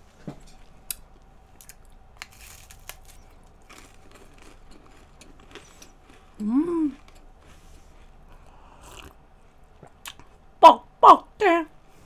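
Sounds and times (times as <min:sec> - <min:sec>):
crunchy pastry being chewed: 0:00.9 - 0:10.4.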